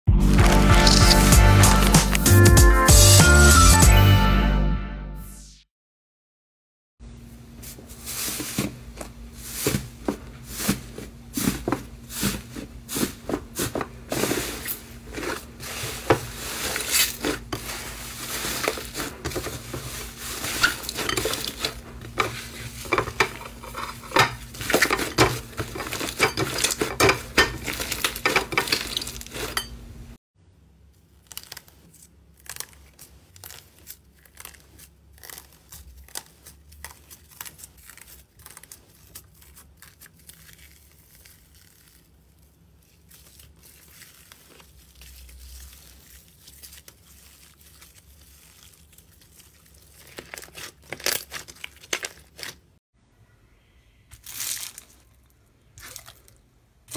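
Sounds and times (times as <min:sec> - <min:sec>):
foil crinkling: 0:00.1 - 0:02.5, 0:07.7 - 0:29.7, 0:31.0 - 0:52.8, 0:54.2 - 0:55.2
slime crackling and popping: 0:31.1 - 0:52.6.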